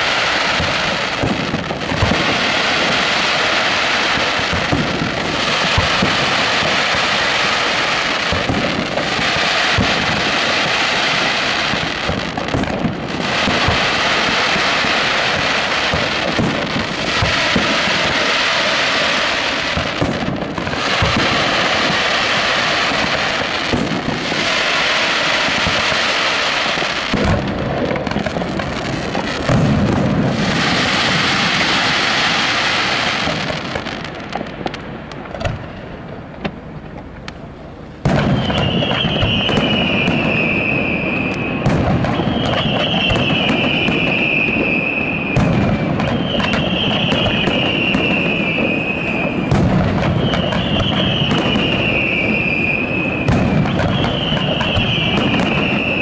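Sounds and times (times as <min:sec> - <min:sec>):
high firework whistle: 0:00.0 - 0:35.9, 0:38.0 - 0:56.0
fireworks bursting with crackle and booms: 0:00.0 - 0:56.0.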